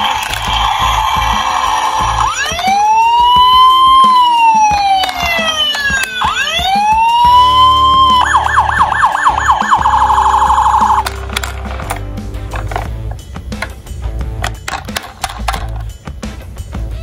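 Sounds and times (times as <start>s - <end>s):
toy police siren wailing: 0.0s - 11.1s.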